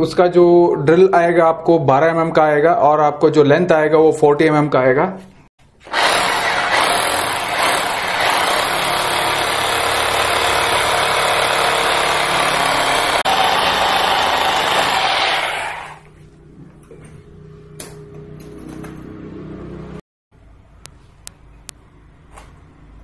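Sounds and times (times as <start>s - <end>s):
hammer drill boring into masonry: 5.8s - 16.0s.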